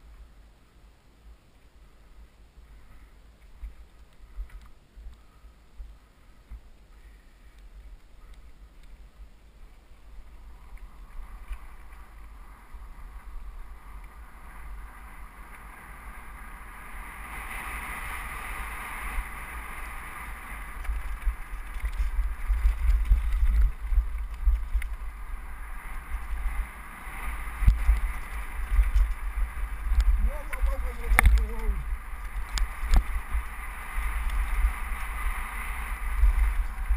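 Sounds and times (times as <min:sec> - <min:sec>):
wind buffeting microphone: 0:07.7 - 0:36.9.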